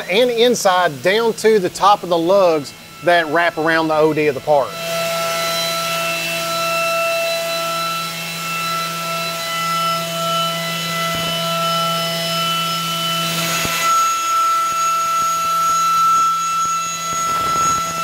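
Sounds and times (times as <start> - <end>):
hiss of metal cutting: 0.0 - 18.0
milling cutter whine: 0.0 - 18.0.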